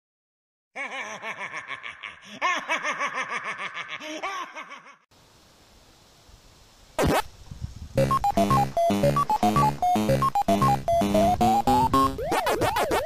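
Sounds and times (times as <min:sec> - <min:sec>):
person laughing: 0:00.8 - 0:05.0
faint steady hiss: 0:05.1 - 0:08.7.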